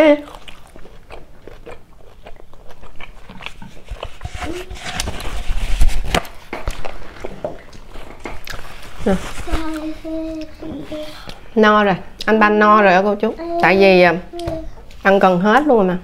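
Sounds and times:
paper towel rustling and tearing: 3.5 - 11.2.

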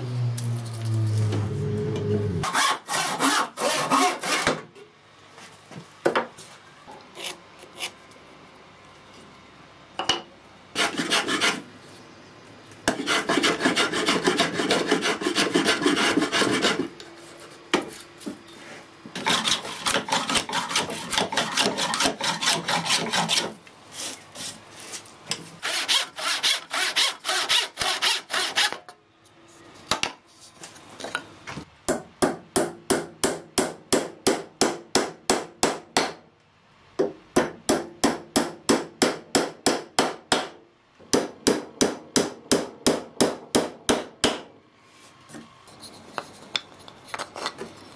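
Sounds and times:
hand tool scraping wood: 2.4 - 4.6, 10.8 - 11.6, 12.9 - 18.0, 18.6 - 28.8.

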